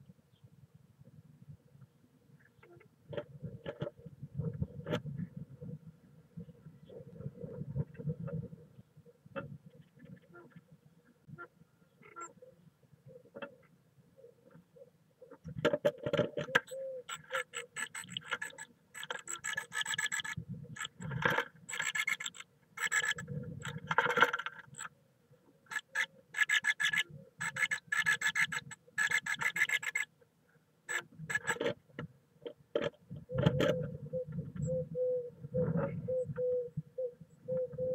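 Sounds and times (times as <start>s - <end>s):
bird scratching in nest: 17.1s - 24.9s, 25.7s - 30.1s.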